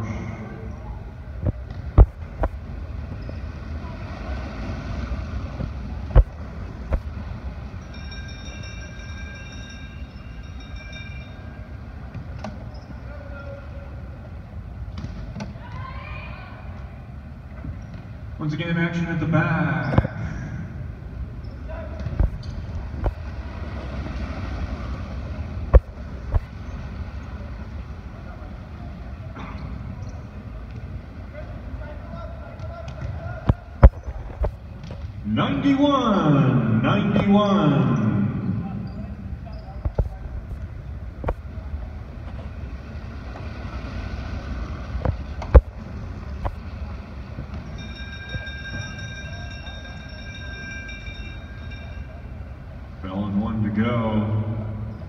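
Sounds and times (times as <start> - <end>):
high ringing tone: 7.6 - 12.0, 47.6 - 53.2.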